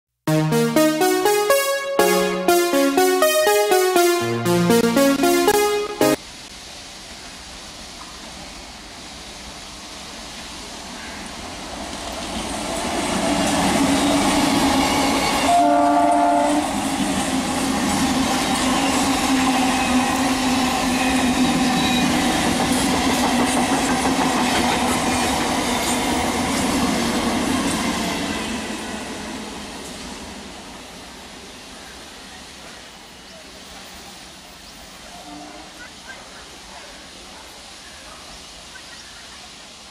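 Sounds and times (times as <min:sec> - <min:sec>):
train horn blast: 0:15.5 - 0:16.8.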